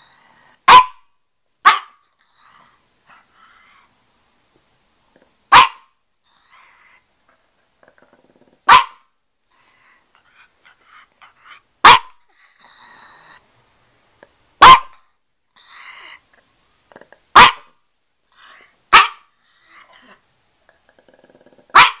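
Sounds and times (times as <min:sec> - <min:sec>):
dog barking: 0:00.7 - 0:02.0, 0:05.5 - 0:05.9, 0:08.7 - 0:09.1, 0:11.8 - 0:12.2, 0:14.6 - 0:15.0, 0:17.4 - 0:17.8, 0:18.9 - 0:19.3, 0:21.7 - 0:22.0.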